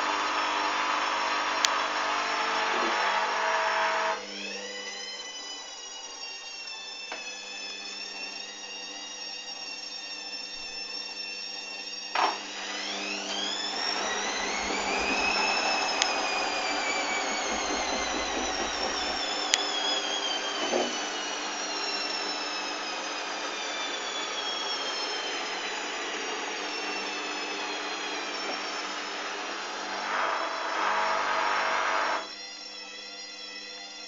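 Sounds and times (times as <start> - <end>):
washing machine spin whine: 0.0 - 34.0.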